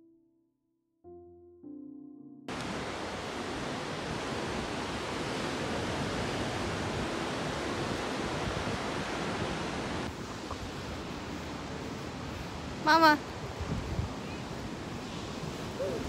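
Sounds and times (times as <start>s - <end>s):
piano music: 0.0s - 2.6s
ocean surf breaking: 2.5s - 16.0s.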